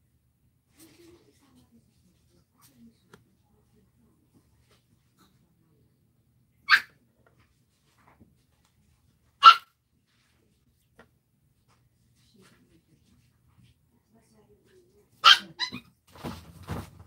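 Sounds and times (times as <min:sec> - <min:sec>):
dog barking: 0:06.7 - 0:07.0, 0:09.4 - 0:09.7, 0:15.2 - 0:15.8.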